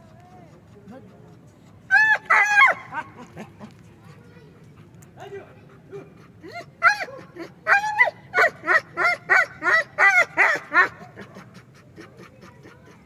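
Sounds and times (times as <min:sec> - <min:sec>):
dog yelping barks: 0:01.9 - 0:03.2, 0:06.8 - 0:11.4.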